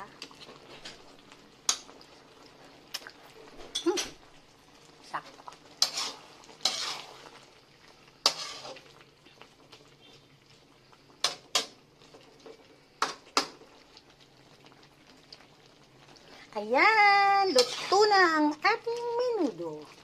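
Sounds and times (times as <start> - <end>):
spatula scraping metal pan: 5.8 - 7.4, 8.2 - 8.9, 17.5 - 18.2.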